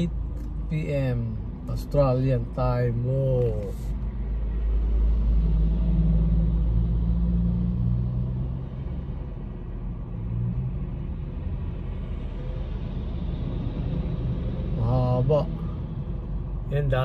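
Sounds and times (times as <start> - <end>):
car engine rumble: 0.0 - 17.0
road rumble inside car: 0.0 - 17.0.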